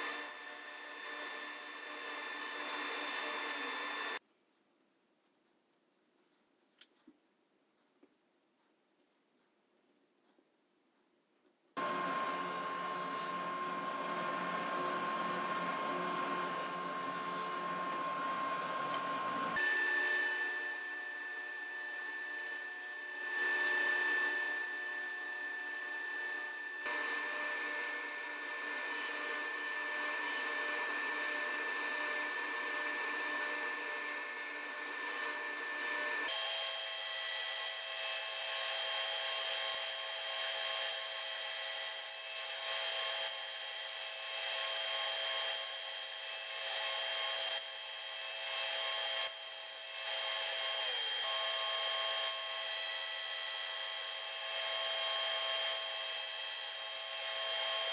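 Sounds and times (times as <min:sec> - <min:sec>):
saw blade whine: 0:00.0 - 0:04.2, 0:11.8 - 0:40.9
table saw cutting wood: 0:00.0 - 0:04.2, 0:11.8 - 0:57.9.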